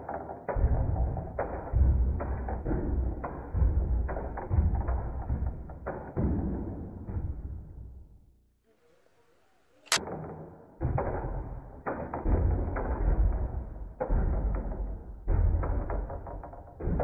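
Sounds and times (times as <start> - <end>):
wooden mechanism rapid clattering: 0.0 - 7.1, 9.9 - 17.0
sharp snap: 9.8 - 10.0.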